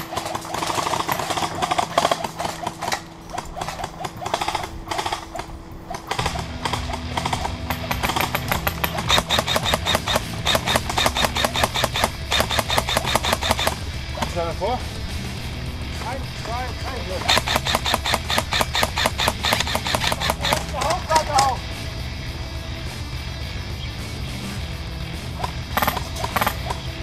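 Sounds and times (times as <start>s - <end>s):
airsoft guns firing full-auto: 0.0s - 14.6s, 16.8s - 21.6s.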